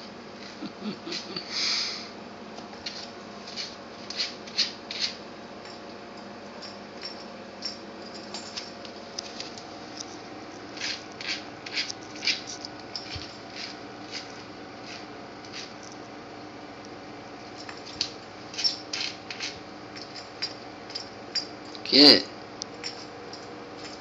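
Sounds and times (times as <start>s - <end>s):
puppy claws scraping on tile: 2.7s - 5.2s, 9.2s - 16.0s, 17.6s - 20.6s.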